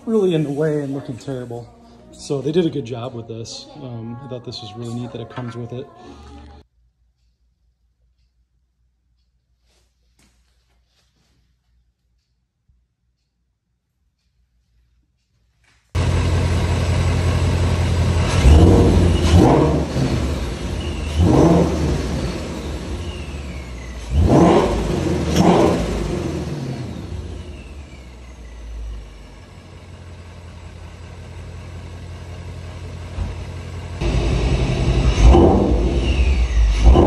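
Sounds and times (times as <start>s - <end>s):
car engine revving: 16.0s - 37.0s
supercharger whine: 16.0s - 37.0s.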